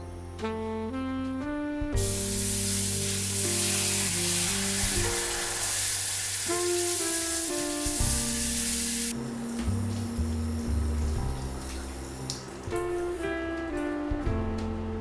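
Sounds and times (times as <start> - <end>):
background music: 0.0 - 15.0
water hissing and sizzling in pan: 2.0 - 12.4.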